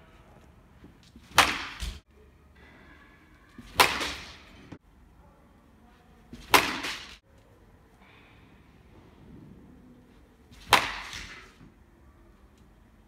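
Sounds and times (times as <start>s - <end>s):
baseball bat hitting ball: 1.2s - 2.0s, 3.6s - 4.6s, 6.4s - 7.2s, 10.6s - 11.6s.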